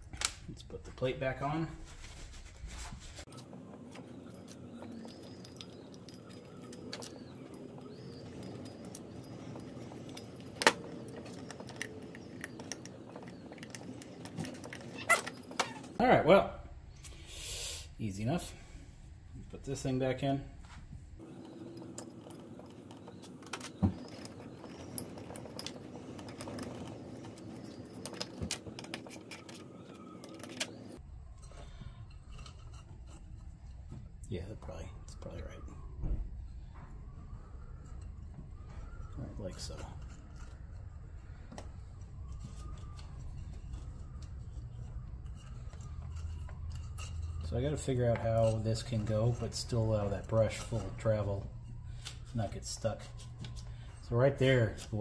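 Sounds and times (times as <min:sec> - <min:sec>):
metal parts clinking and tapping: 0:03.3 - 0:16.0, 0:21.3 - 0:34.0, 0:38.8 - 0:54.1.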